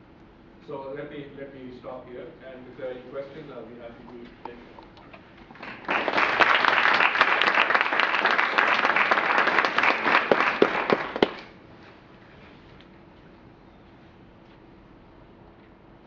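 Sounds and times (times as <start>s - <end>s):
audience applauding: 5.4s - 11.6s.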